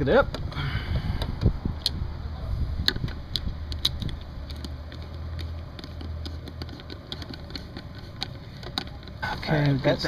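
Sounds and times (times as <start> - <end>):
steady low hum: 0.0 - 10.0
nut driver clicking on hose clamps: 2.8 - 9.2.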